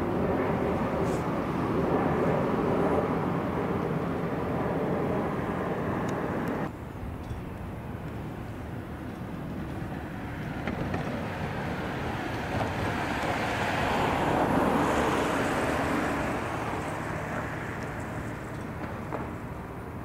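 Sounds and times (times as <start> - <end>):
vehicle passing by: 8.3 - 20.0.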